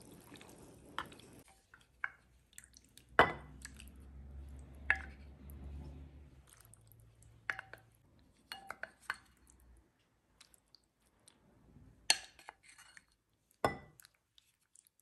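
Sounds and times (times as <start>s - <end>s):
wooden spoon knocking glass bowl: 13.7s - 13.9s.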